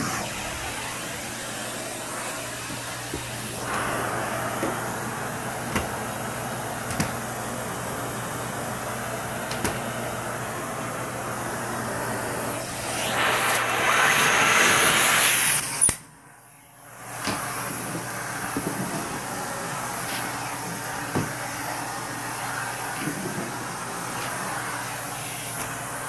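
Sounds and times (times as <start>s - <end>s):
vacuum cleaner hissing: 0.0s - 26.0s
vacuum tool knocking: 2.6s - 7.3s, 21.0s - 21.4s.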